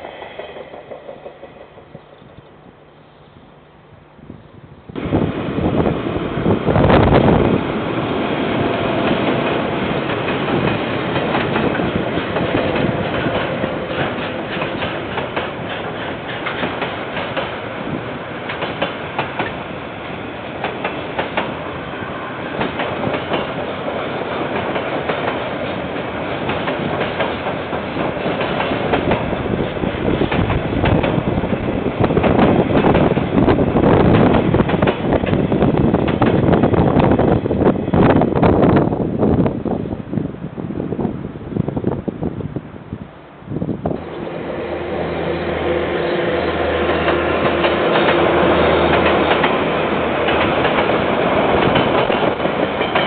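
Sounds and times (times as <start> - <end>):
train wheel clicks: 0.0 - 2.6, 9.0 - 17.6, 18.4 - 19.6, 20.6 - 21.6, 22.6 - 23.6, 24.4 - 33.3, 34.0 - 37.2, 46.8 - 53.0
freight train rumbling past: 0.0 - 53.0.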